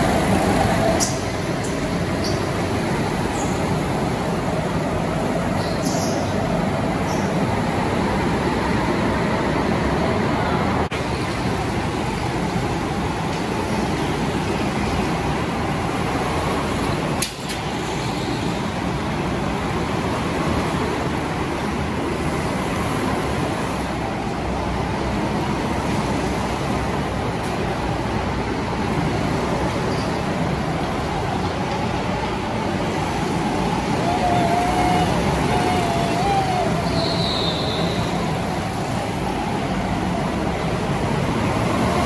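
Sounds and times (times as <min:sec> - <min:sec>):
go-kart engine drone: 0:32.0 - 0:42.0.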